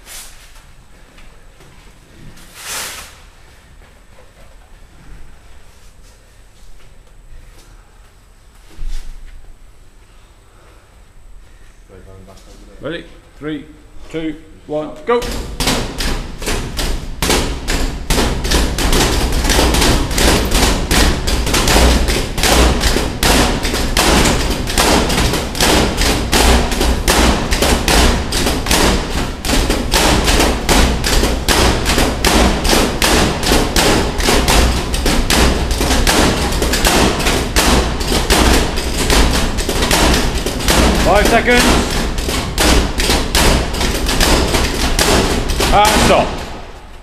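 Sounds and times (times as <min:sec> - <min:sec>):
boxing gloves thudding on pads: 0:15.2 - 0:46.7.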